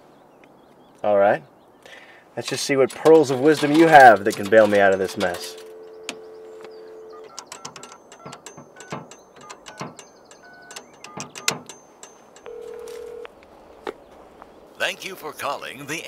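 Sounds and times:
phone ringing tone: 5.1s - 8.9s, 12.4s - 13.3s
touch-tone keypad beeps: 5.1s - 13.3s
dial tone: 12.5s - 13.3s.

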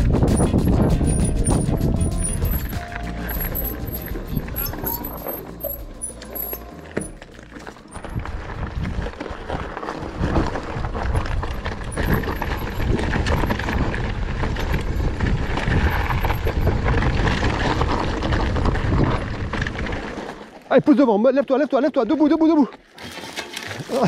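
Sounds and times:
wind rumble on microphone: 0.0s - 5.7s, 7.9s - 20.2s
bike rattling: 0.0s - 21.9s, 22.5s - 24.0s.

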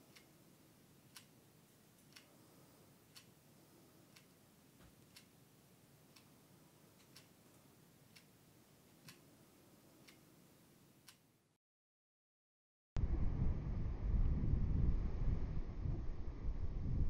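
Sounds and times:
clock ticking: 0.0s - 11.4s.

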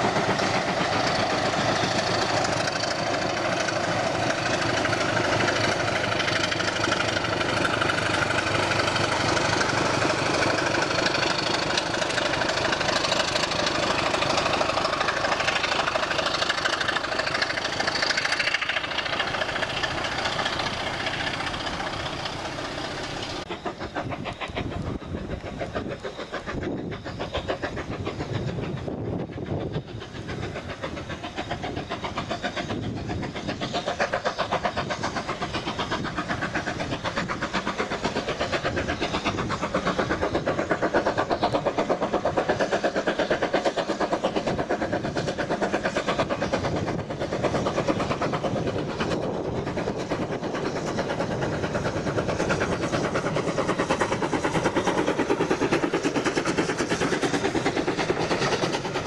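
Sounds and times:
steam locomotive chuffing: 0.0s - 59.0s
train coaches rolling past: 0.0s - 59.0s.

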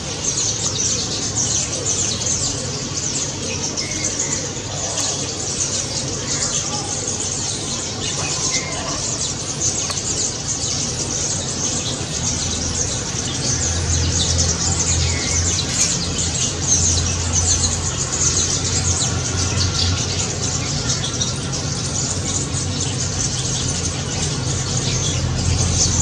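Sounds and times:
starlings chattering and squawking: 0.0s - 26.0s.

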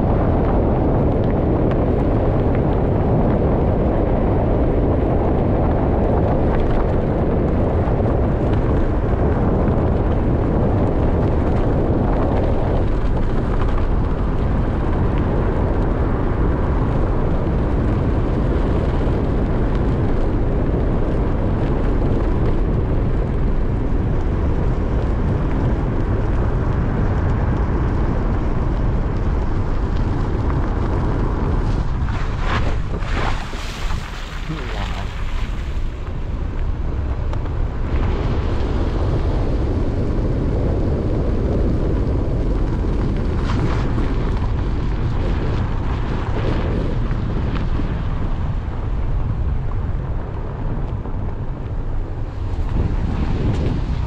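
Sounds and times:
vehicle road noise on gravel: 0.0s - 54.0s
wind buffeting microphone: 0.0s - 54.0s.

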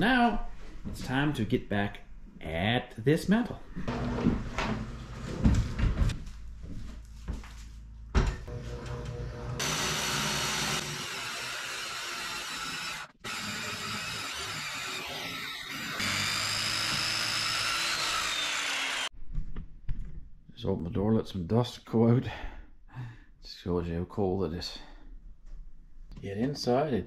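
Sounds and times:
circular saw cutting wood: 8.5s - 19.1s.

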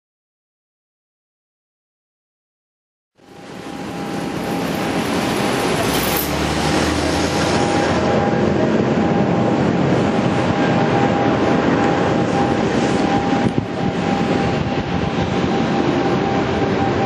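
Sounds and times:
jet engines roaring with whine: 3.2s - 17.0s.

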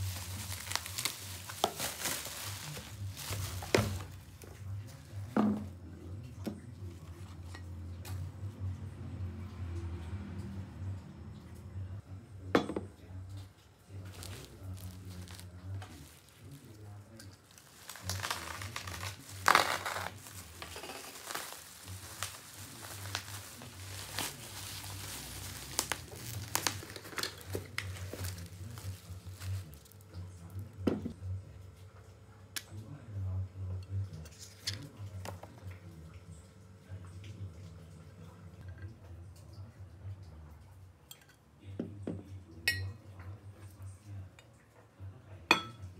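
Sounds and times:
plastic mailer crinkling and tearing: 0.0s - 4.4s, 14.0s - 16.7s, 17.4s - 30.1s.

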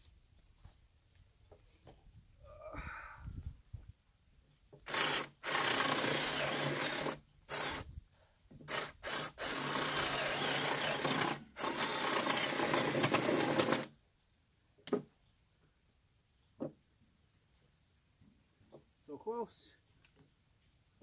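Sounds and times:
cordless drill boring into wood: 4.8s - 7.9s, 8.6s - 13.9s.

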